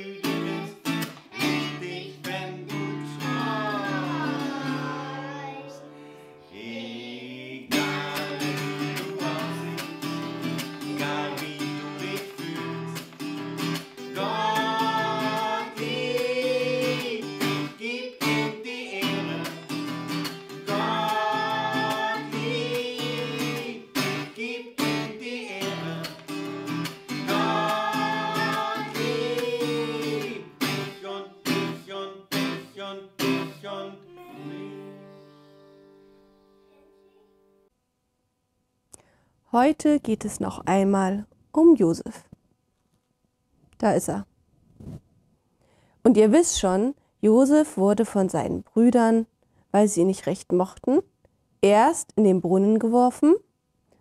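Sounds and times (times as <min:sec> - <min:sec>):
children singing a hymn: 0:00.0 - 0:09.8, 0:14.2 - 0:19.6, 0:20.6 - 0:26.2, 0:27.2 - 0:30.5
acoustic guitar strumming: 0:00.0 - 0:37.7.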